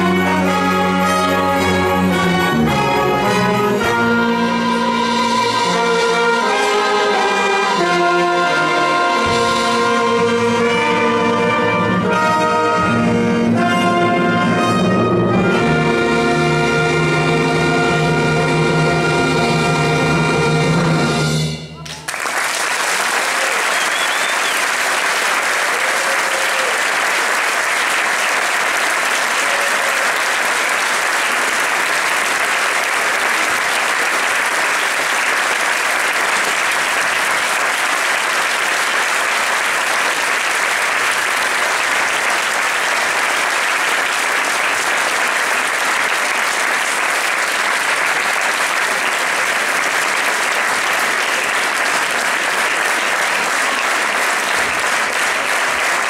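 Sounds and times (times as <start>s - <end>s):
audience applauding: 21.8s - 56.0s.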